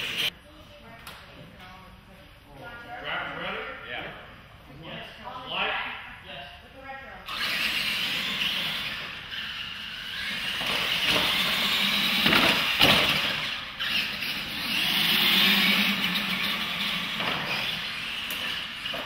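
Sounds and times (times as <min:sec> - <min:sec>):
rc truck motors whining: 0:00.0 - 0:00.3, 0:07.2 - 0:19.0.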